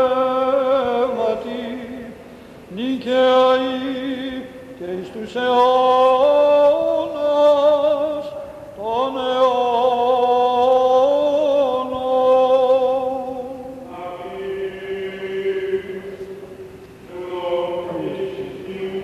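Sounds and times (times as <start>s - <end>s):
low sustained chant: 0.0s - 16.5s, 17.1s - 19.0s
person chanting long note: 17.1s - 19.0s.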